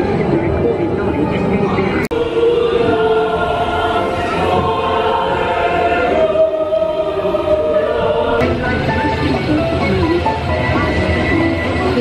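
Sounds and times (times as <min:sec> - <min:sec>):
choir singing held notes: 0:02.1 - 0:09.9.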